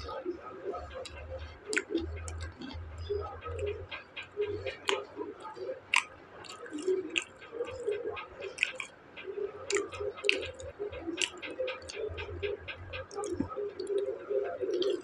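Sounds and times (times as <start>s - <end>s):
man chewing food: 1.1s - 3.9s, 5.8s - 7.9s, 8.5s - 8.9s, 11.2s - 12.0s.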